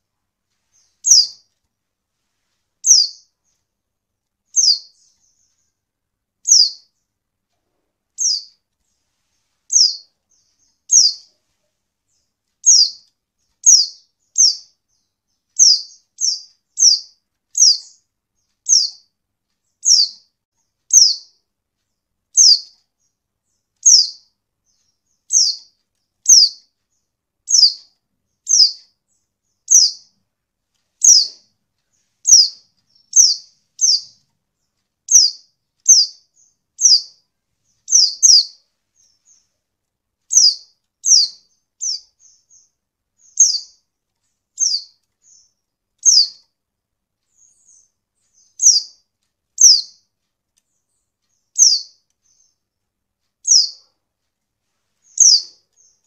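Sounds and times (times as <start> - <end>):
faint bird twitter: 0.0 - 1.6, 2.2 - 3.8, 4.4 - 30.2, 30.8 - 39.6, 40.2 - 46.6, 47.2 - 52.8, 53.4 - 54.0, 55.0 - 56.0
bird chirping sharp high call: 1.0 - 1.4, 2.8 - 3.3, 4.6 - 5.4, 6.4 - 6.9, 8.2 - 8.5, 10.9 - 11.3, 12.6 - 13.0, 13.6 - 14.7, 20.9 - 21.4, 23.8 - 24.2, 25.3 - 26.6, 27.5 - 27.8, 28.5 - 28.8, 31.0 - 31.4, 32.3 - 34.2, 37.9 - 38.6, 40.3 - 43.8, 46.0 - 46.4, 51.6 - 52.4, 53.4 - 53.9, 55.1 - 55.9.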